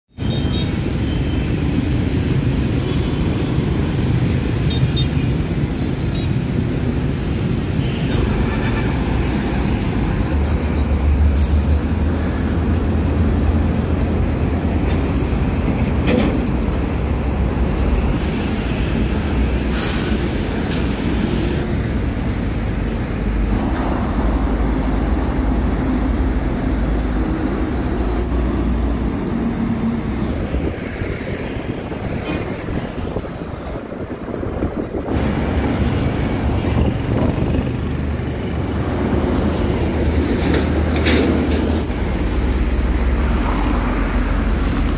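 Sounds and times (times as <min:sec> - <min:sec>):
heavy trucks passing: 0:00.2 - 0:44.9
brief hisses: 0:19.7 - 0:21.2
motorbikes passing: 0:21.5 - 0:44.9.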